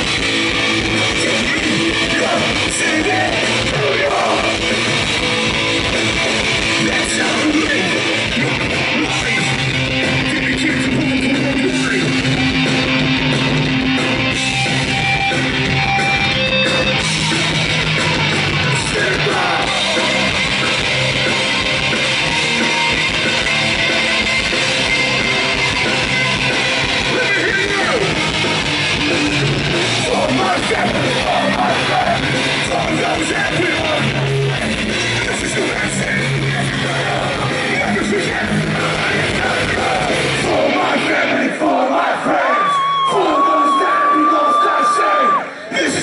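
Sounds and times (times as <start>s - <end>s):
bass guitar: 0.0s - 41.6s
distorted electric guitars: 0.0s - 46.0s
drums: 0.0s - 46.0s
shouted vocals: 1.1s - 4.6s, 36.9s - 46.0s.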